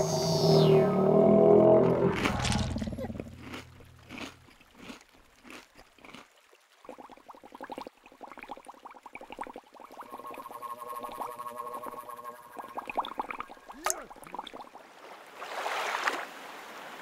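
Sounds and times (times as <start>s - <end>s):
cartoon watery gurgles: 2.0s - 14.8s
short rising bubble blips: 7.0s - 14.8s.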